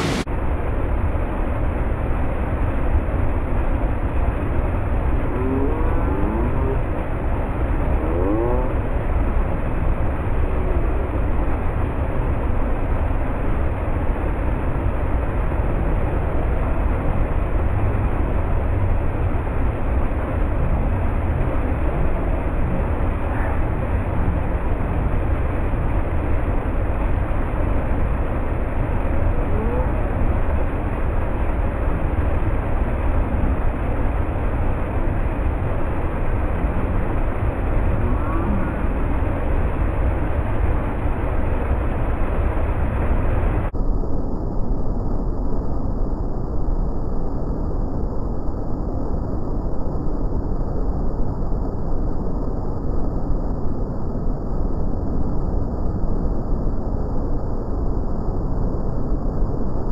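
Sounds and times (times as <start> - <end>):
waterfall rushing: 0.0 - 0.2.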